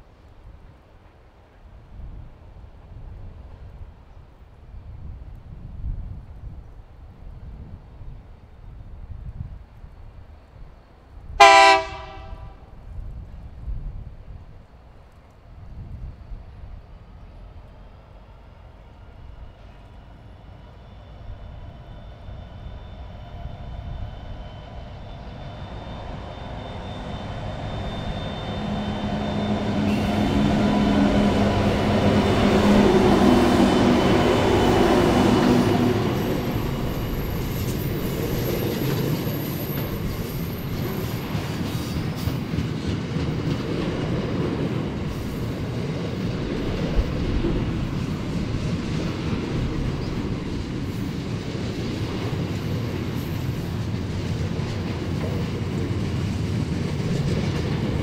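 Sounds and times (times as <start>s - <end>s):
diesel locomotive engines passing: 0.3s - 58.0s
high wheel squeal: 20.8s - 30.9s, 35.7s - 42.4s
train wheels clickety-clack: 25.4s - 58.0s.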